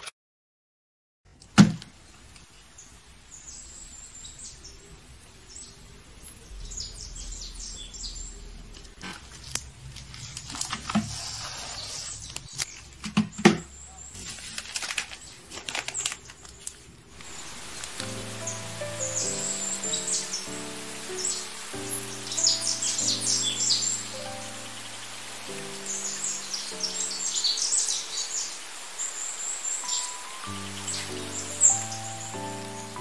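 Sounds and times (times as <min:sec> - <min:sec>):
plastic wrapping crinkling: 0:08.7 - 0:13.2, 0:14.1 - 0:18.8.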